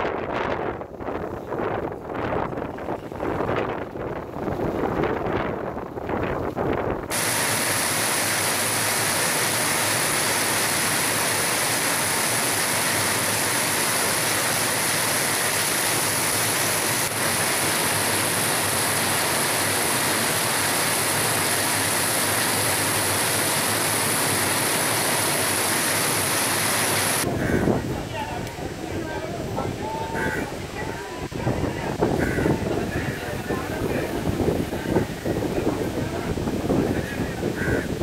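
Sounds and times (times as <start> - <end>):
heavy rain on street: 7.1 - 27.5.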